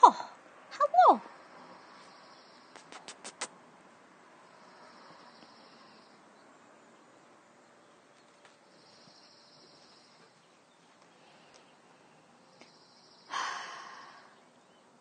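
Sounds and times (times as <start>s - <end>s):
faint insect trill: 1.6s - 2.8s, 4.5s - 6.2s, 8.6s - 10.4s, 12.4s - 14.4s
faint ticks: 12.5s - 12.9s.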